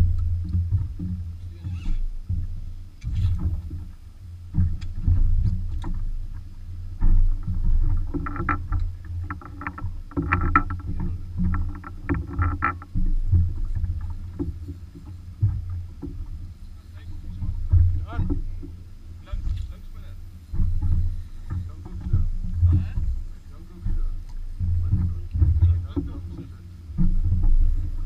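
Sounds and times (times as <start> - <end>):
wind and water rumble: 0.0 - 28.0
quick ticking and rattling: 7.0 - 28.0.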